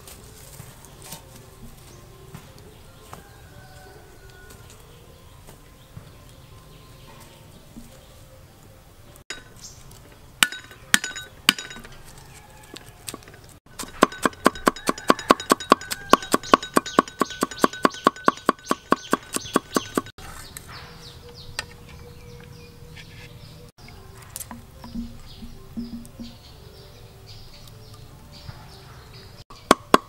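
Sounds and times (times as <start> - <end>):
cleaver chopping on wooden block: 13.1 - 20.1, 29.5 - 30.0.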